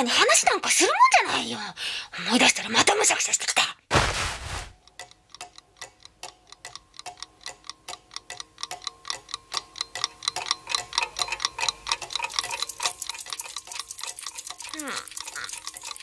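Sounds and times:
clock ticking: 0:04.8 - 0:16.0.

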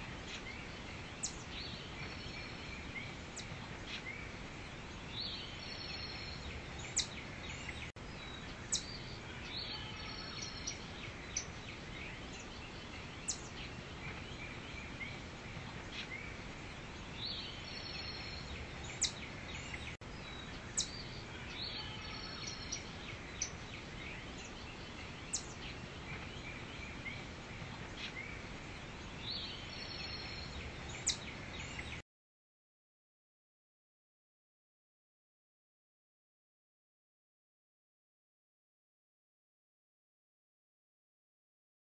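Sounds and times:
steady background hiss: 0:00.0 - 0:32.0
bird chirps: 0:05.1 - 0:15.2, 0:17.1 - 0:28.4, 0:29.1 - 0:32.0.

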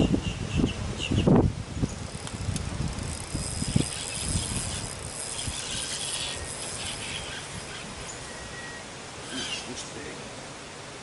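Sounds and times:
fishing reel cranking: 0:02.0 - 0:07.9.

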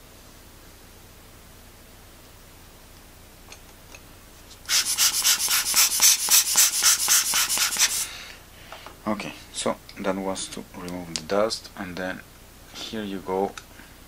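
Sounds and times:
air blower hissing puffs: 0:04.6 - 0:09.0.

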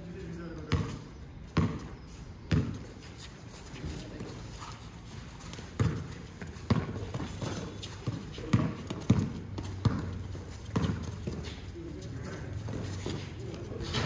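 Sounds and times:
basketball bouncing on concrete: 0:00.6 - 0:02.9, 0:05.5 - 0:14.0.

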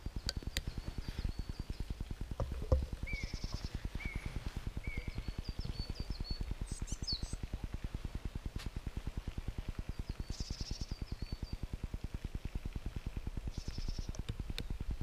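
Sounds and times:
small birds chirping: 0:00.0 - 0:07.5, 0:09.8 - 0:11.8, 0:13.5 - 0:14.7
low rapid pulsing: 0:00.0 - 0:15.0.

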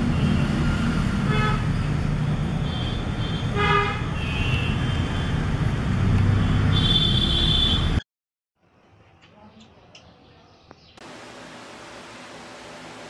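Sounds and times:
road traffic rumble: 0:00.0 - 0:08.0
vehicle horn toot: 0:02.7 - 0:05.3, 0:06.5 - 0:08.0.

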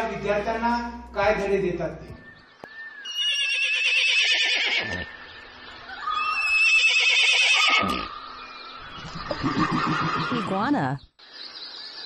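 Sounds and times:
horse whinny through phone speaker: 0:03.1 - 0:05.1, 0:06.1 - 0:08.1, 0:09.4 - 0:10.7.

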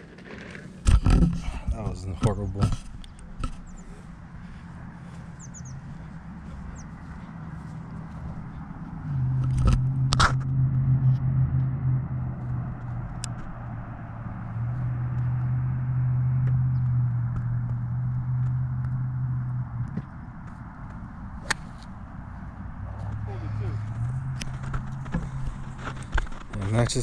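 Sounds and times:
low engine hum: 0:00.0 - 0:27.0
bird chirps: 0:03.0 - 0:04.1, 0:05.0 - 0:07.1.

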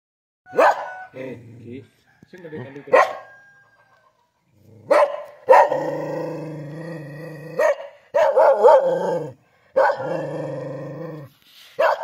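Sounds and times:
dog barking and howling: 0:00.5 - 0:01.2, 0:02.9 - 0:03.4, 0:04.8 - 0:12.0.

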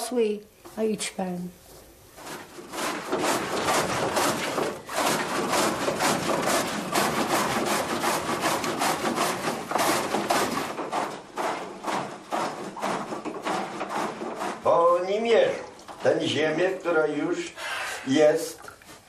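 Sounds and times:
laundry scrubbed on a washboard: 0:01.6 - 0:17.4.

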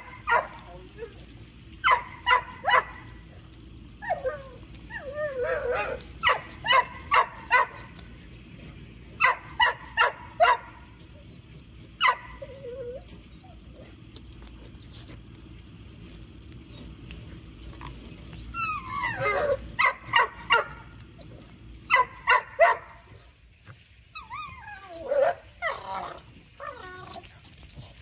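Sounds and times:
dog barking: 0:01.8 - 0:03.1, 0:09.2 - 0:10.8
dog whining: 0:04.0 - 0:07.6, 0:12.0 - 0:14.0, 0:17.8 - 0:22.3, 0:24.0 - 0:28.0.

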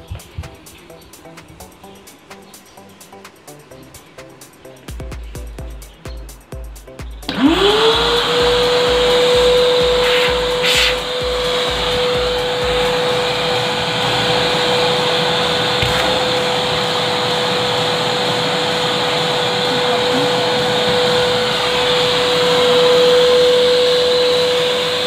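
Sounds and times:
vacuum cleaner running: 0:07.2 - 0:25.0.

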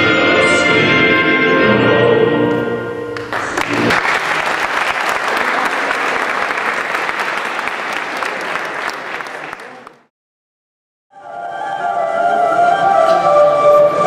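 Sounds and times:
orchestral music: 0:00.0 - 0:04.0, 0:11.2 - 0:14.0
group of people clapping: 0:03.2 - 0:10.1.

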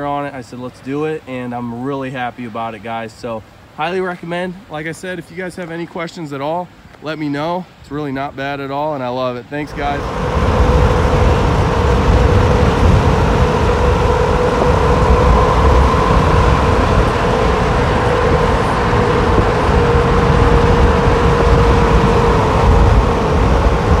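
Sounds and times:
constant humming tone: 0:09.5 - 0:24.0
road and tyre drone: 0:09.6 - 0:24.0
wind buffeting microphone: 0:09.6 - 0:24.0.

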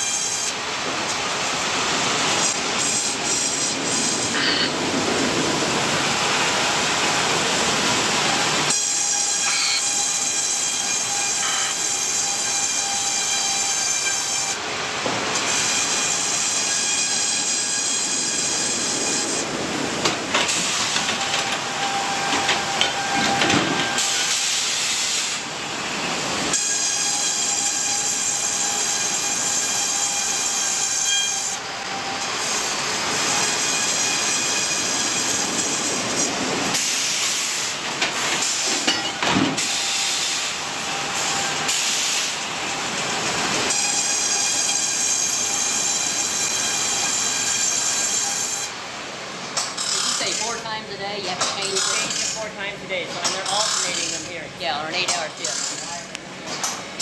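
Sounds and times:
high saw whine: 0:00.0 - 0:04.8, 0:05.8 - 0:48.9, 0:49.6 - 0:57.0
sawmill machinery rushing noise: 0:00.0 - 0:57.0.

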